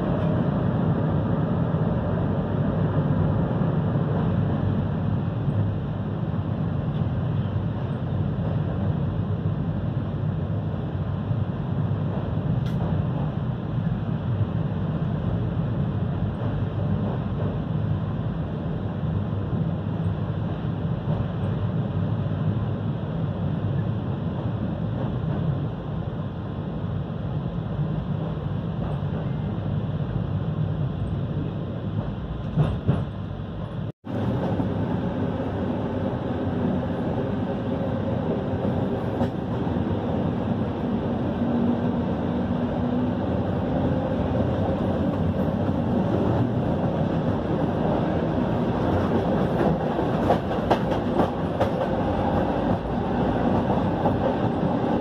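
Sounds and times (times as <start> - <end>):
train rumble: 0.0 - 55.0
train wheels clicking: 44.3 - 55.0.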